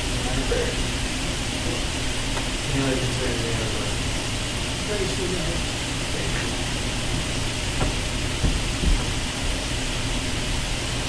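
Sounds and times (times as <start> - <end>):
steady room hiss: 0.0 - 11.0
soft low thumps: 7.0 - 9.5.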